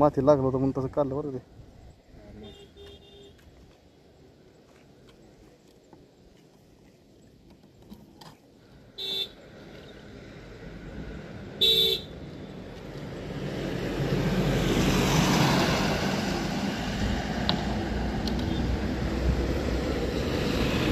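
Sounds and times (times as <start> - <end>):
vehicle horn toots: 2.4 - 3.4, 9.0 - 9.4, 11.6 - 12.1
vehicle passing: 9.4 - 20.9.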